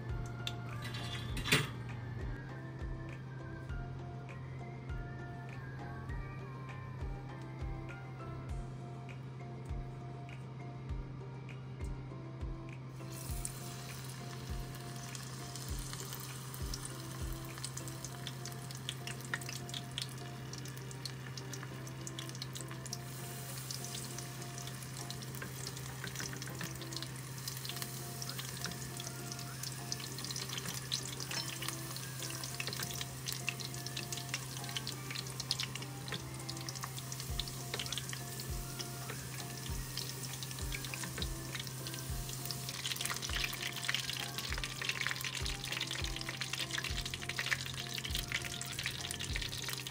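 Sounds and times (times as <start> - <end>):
oil sizzling and crackling: 12.9 - 49.9.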